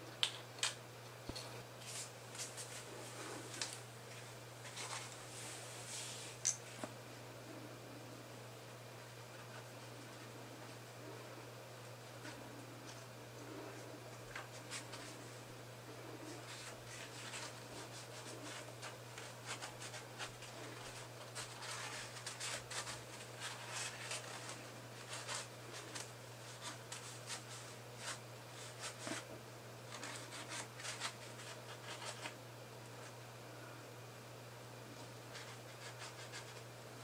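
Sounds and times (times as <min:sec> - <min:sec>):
paper towel rustling on plastic: 0:01.8 - 0:06.9, 0:16.0 - 0:32.4.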